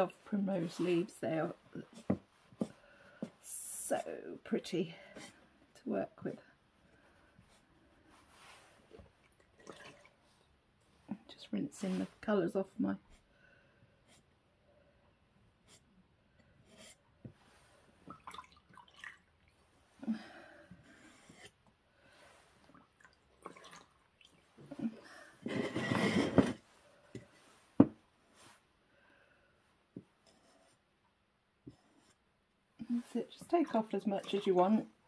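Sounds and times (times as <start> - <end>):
water splashing and dripping: 18.0 - 19.5, 22.6 - 24.4.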